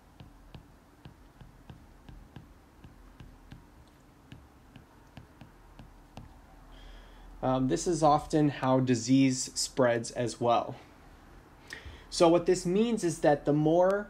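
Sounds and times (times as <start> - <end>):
stylus tapping on tablet: 0.0 - 6.4
low steady hum: 0.0 - 14.0.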